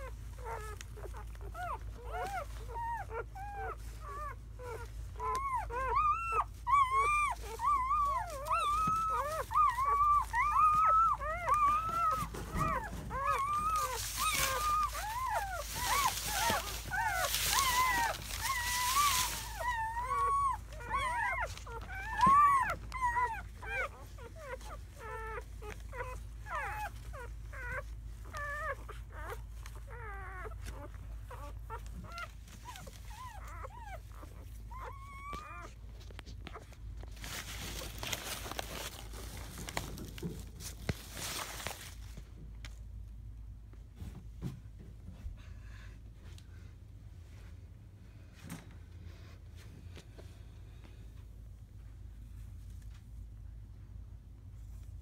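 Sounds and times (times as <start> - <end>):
puppies crying and whimpering: 0.0 - 42.0.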